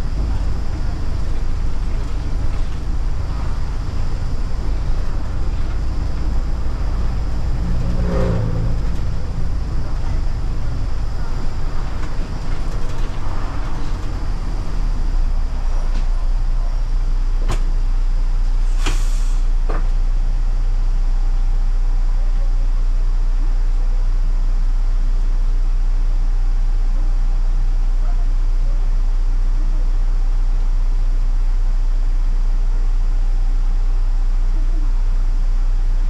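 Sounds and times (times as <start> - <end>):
road noise: 0.0 - 22.5
bus engine: 0.0 - 36.0
air brake hiss: 18.6 - 19.6.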